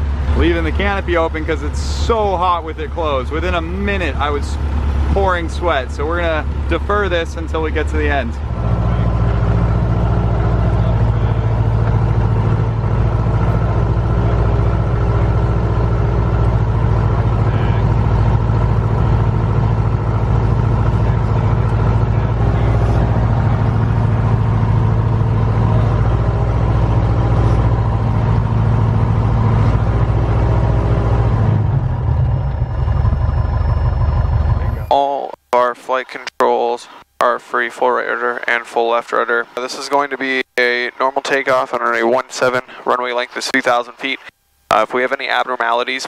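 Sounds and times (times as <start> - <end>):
aircraft piston engine running: 0.0 - 34.9.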